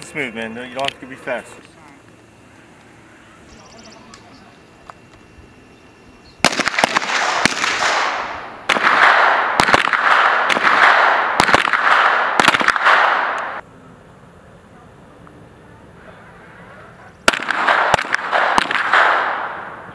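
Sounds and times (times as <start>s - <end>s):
pistols firing with echoes: 6.4s - 13.6s, 17.2s - 19.9s.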